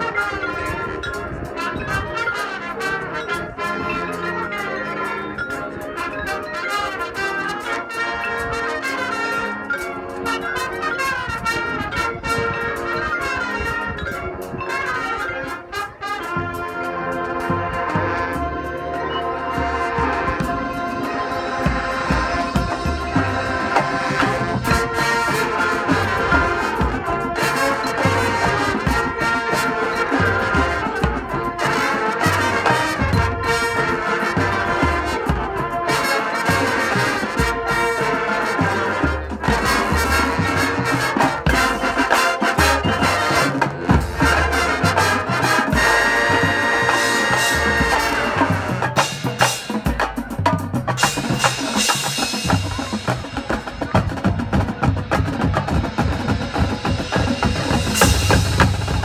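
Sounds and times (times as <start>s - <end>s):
marching band playing: 0.0s - 59.0s
low drum beats: 19.6s - 35.9s, 36.6s - 59.0s.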